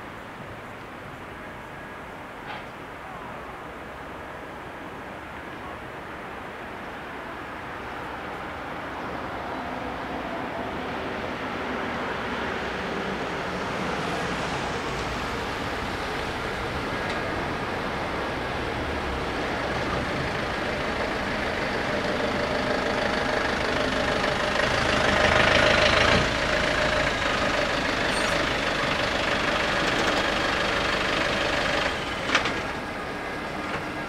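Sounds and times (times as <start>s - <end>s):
road traffic: 0.0s - 34.0s
car engine idling: 15.5s - 34.0s.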